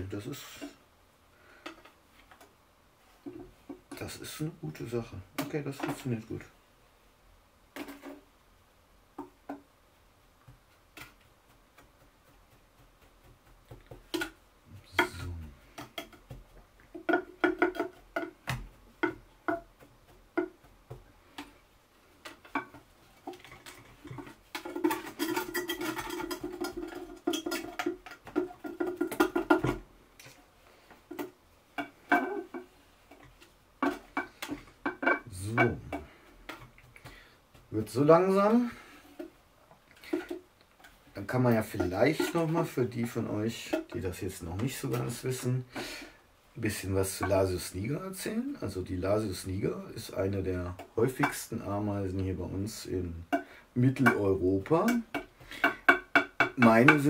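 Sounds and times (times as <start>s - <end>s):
scraping and tapping on glass: 15.0s - 20.7s, 22.2s - 30.3s, 31.1s - 36.9s.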